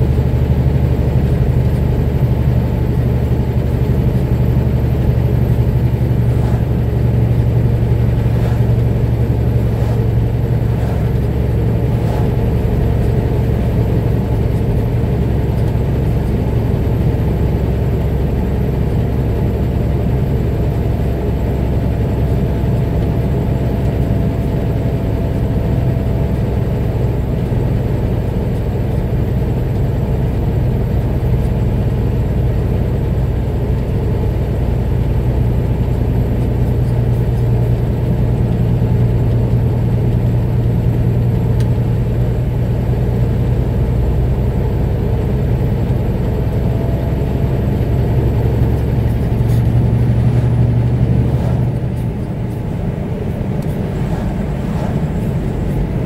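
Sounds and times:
vehicle engine and road rumble: 0.0 - 56.0.

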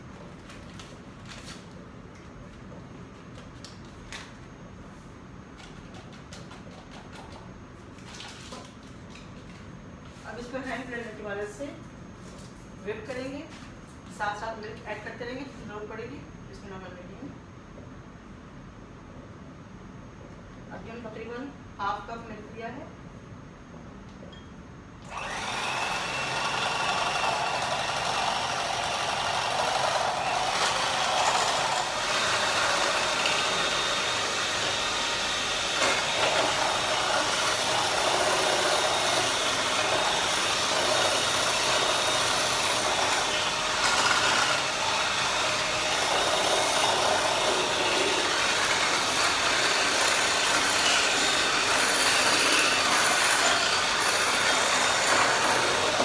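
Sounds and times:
electric hand mixer running: 25.1 - 56.0.

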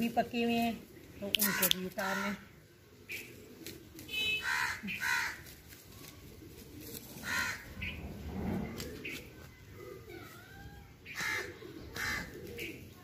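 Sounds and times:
crows cawing: 1.4 - 2.5, 4.4 - 5.6, 7.2 - 7.9, 11.2 - 12.4.

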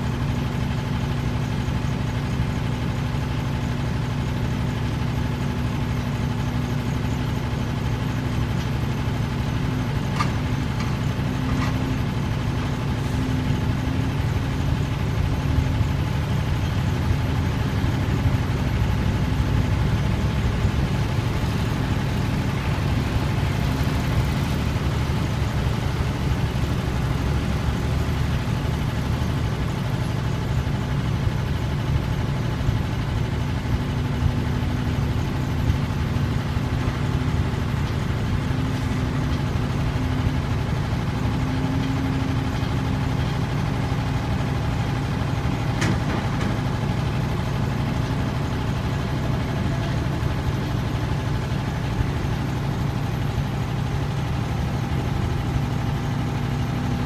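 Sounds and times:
diesel engines rumbling: 0.0 - 57.0.

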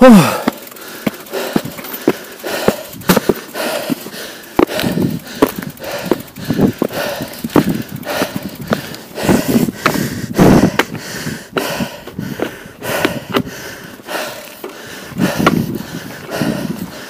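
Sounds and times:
bike clicks and knocks: 0.0 - 17.0
person breathing hard: 0.0 - 17.0.

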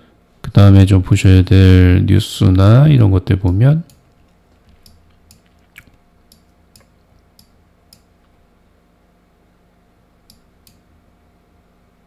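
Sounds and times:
steady low hum: 0.0 - 12.0
computer mouse clicks: 3.5 - 8.1, 10.2 - 10.8.

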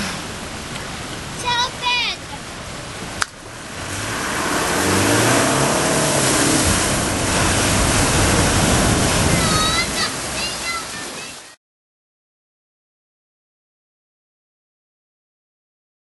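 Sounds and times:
water rushing and splashing: 0.0 - 11.6
engine revving: 3.3 - 10.6.

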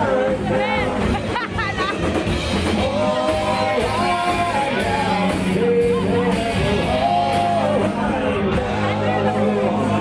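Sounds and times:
rock band playing live: 0.0 - 10.0
person singing long notes: 2.8 - 10.0.

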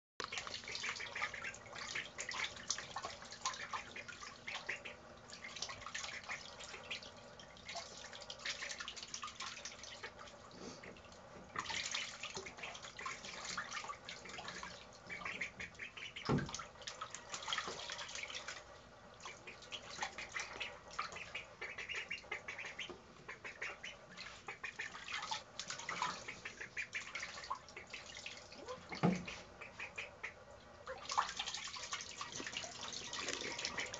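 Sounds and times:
ducks splashing in water: 0.2 - 33.9
duck calls: 20.2 - 25.0.

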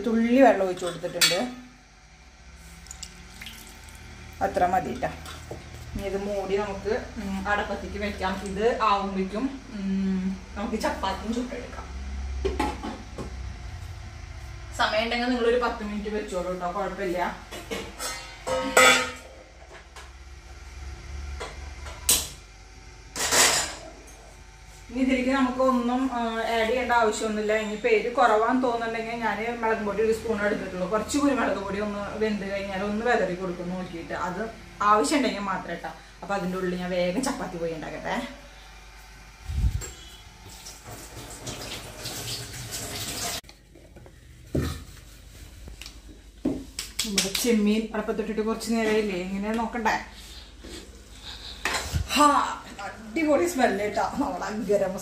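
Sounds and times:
steel cookware clattering: 17.6 - 19.3
food sizzling in a covered pan: 40.3 - 43.4.

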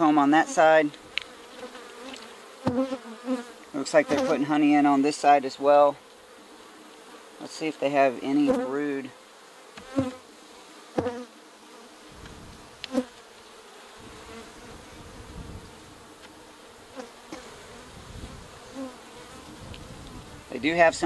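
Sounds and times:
honeybees buzzing: 0.0 - 21.0.

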